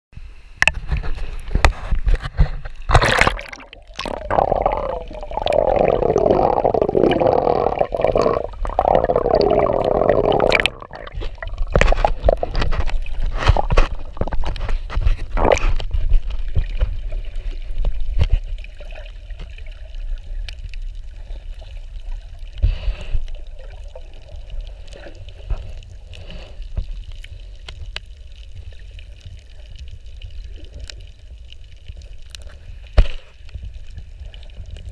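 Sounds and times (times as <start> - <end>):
water splashing and gurgling: 0.6 - 34.9
bubbling underwater: 2.9 - 14.7, 15.3 - 22.4
underwater hiss: 3.6 - 13.7, 22.4 - 27.7.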